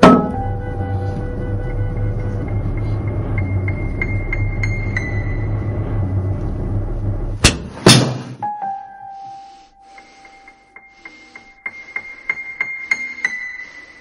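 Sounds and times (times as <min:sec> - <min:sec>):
high held tones: 0:00.0 - 0:07.2
low rumbling drone: 0:00.0 - 0:07.8.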